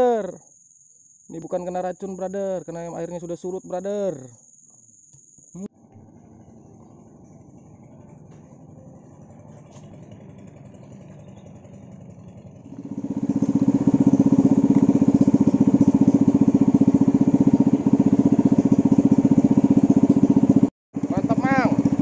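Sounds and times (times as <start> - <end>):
small boat motor running: 5.7 - 22.0.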